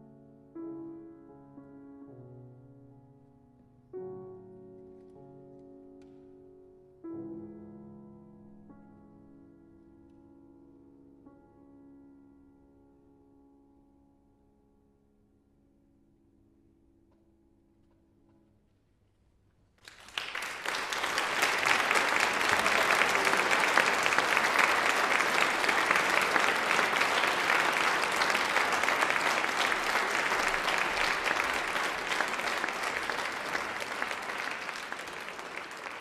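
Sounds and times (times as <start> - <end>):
audience applauding: 19.8 - 36.0.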